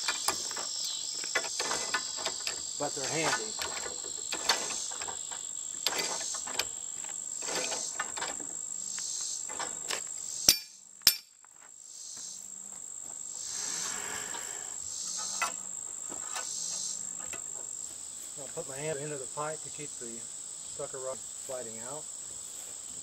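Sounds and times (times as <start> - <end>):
metal tools and pipe clanking: 0.0 - 6.8, 7.4 - 8.5, 9.5 - 11.3
high trill of insects: 0.0 - 23.0.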